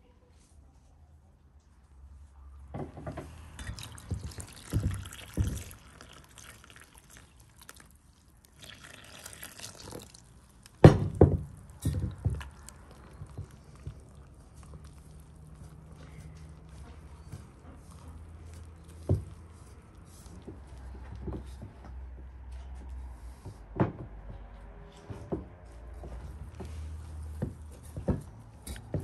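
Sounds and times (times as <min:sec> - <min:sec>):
hand mixing dough: 0:03.2 - 0:23.4, 0:25.6 - 0:29.0
liquid pouring into bowl: 0:03.5 - 0:15.5.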